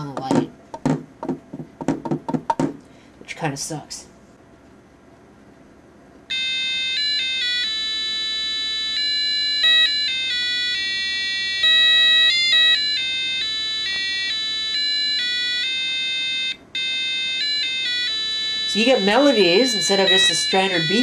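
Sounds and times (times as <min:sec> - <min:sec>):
alarm clock electronic melody: 0:06.3 - 0:21.0.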